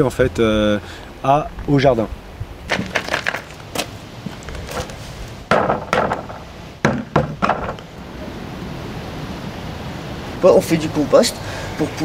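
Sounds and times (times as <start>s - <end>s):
bucket knocking on wooden boards: 2.7s - 3.9s, 5.5s - 7.9s.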